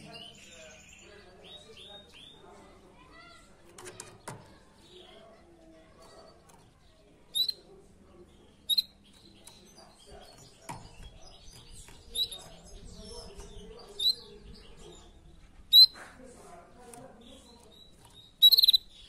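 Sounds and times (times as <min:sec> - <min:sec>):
canary chirps: 0:00.0 - 0:19.0.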